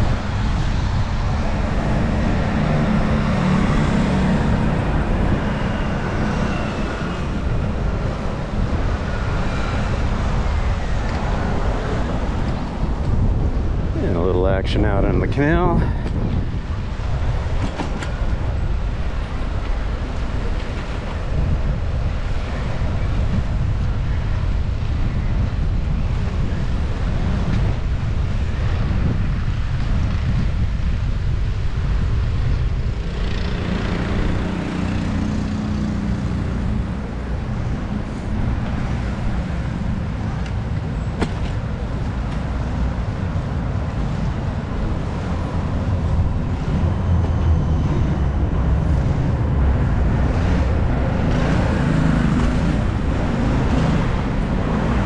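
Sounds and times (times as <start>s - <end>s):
city traffic noise: 0.0s - 55.0s
passing vehicle hum: 0.0s - 55.0s
wind buffeting microphone: 0.0s - 55.0s.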